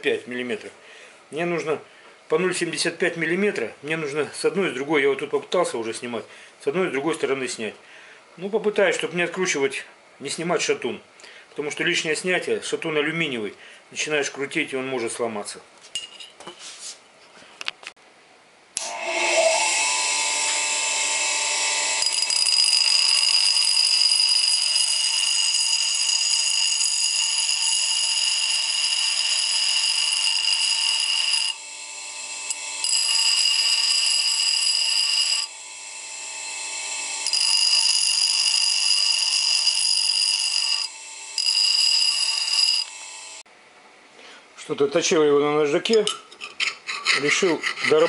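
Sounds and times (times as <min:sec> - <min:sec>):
bench grinder grinding metal: 0:18.8 - 0:43.4.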